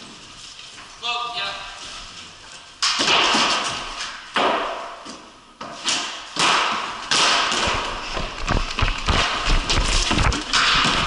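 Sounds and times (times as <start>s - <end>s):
sticks and ball cracking: 2.8s - 11.0s
quick low thuds and knocks: 8.1s - 11.0s.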